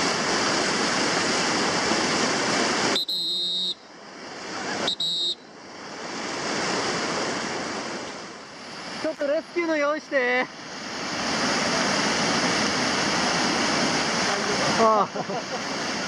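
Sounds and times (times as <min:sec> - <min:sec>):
whitewater rapids rushing: 0:00.0 - 0:16.0
high steady tone: 0:02.9 - 0:03.9, 0:04.8 - 0:05.6.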